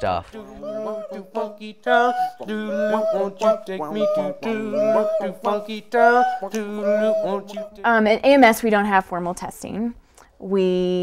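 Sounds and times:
person singing wavering notes: 0.4 - 8.0.

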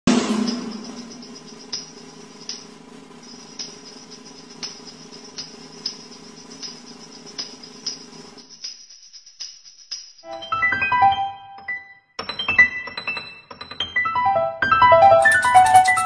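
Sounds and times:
steady low hum: 0.1 - 9.5
tambourine jingles: 0.1 - 10.3.

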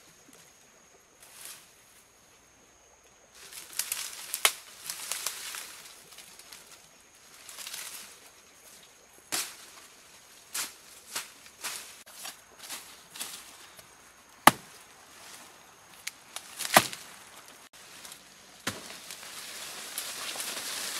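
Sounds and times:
rustling of grass and leaves: 0.0 - 20.9
footsteps in undergrowth: 3.4 - 20.9
sharp crack: 14.4 - 14.8, 16.0 - 17.2, 18.6 - 19.3.

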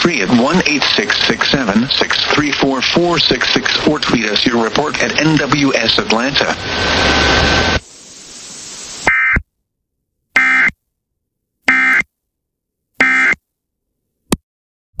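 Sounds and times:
static hiss: 0.0 - 9.4
buzzing data bursts: 10.4 - 10.7, 11.7 - 12.0, 13.0 - 13.4.

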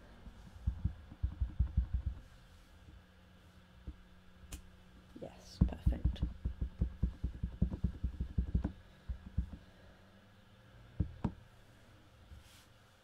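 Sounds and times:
stamp block knocking on ink pad: 0.6 - 2.2, 5.6 - 9.6.

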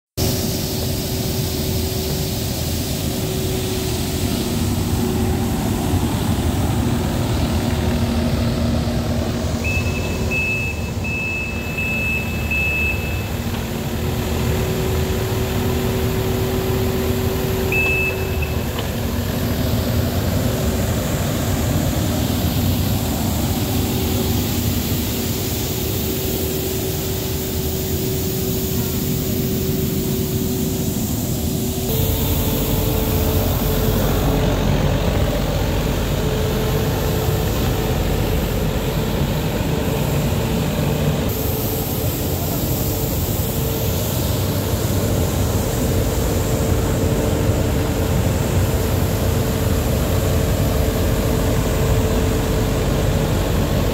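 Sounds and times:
street sweeper engine humming: 0.2 - 53.9
high electronic beeps: 9.6 - 13.5, 17.7 - 18.8.

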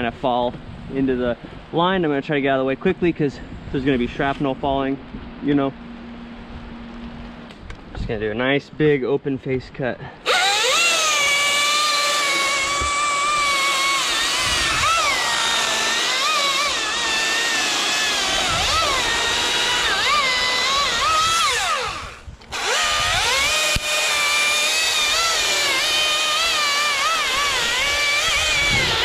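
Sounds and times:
chainsaw cutting wood: 10.2 - 29.0.

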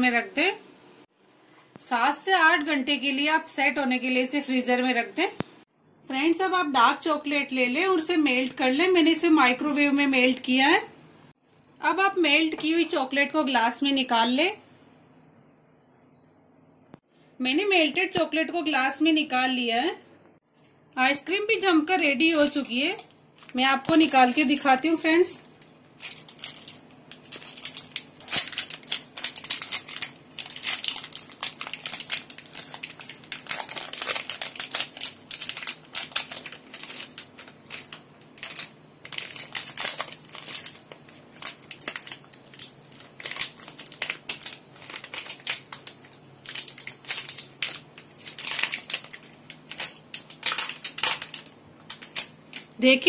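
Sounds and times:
plastic wrapper crinkling: 21.9 - 53.0.

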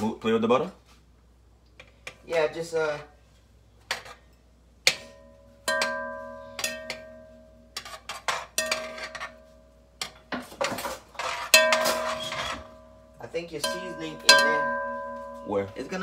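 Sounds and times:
pot ringing: 4.9 - 7.8, 8.5 - 9.8, 11.5 - 16.0.

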